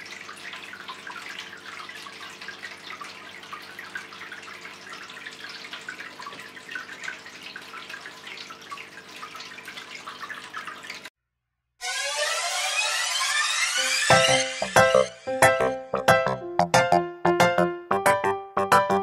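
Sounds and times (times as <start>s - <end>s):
fountain water trickling: 0.0s - 11.1s.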